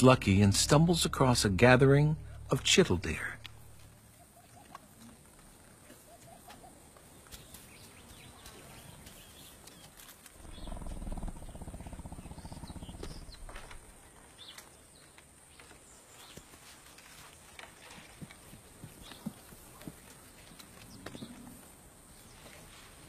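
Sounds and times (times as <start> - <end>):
tiger growling: 10.4 - 13.9.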